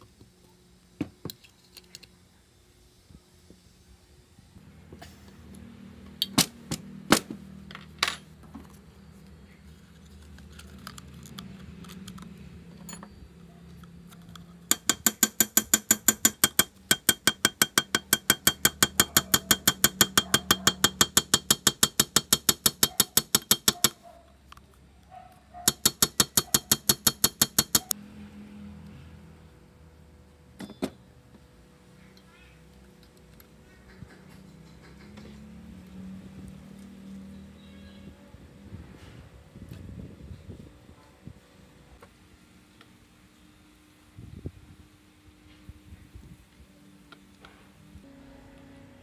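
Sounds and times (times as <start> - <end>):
ratchet wrench clicking: 14.7 - 24.0, 25.6 - 28.0
sharp metal knocks: 14.7 - 24.0, 25.6 - 27.9.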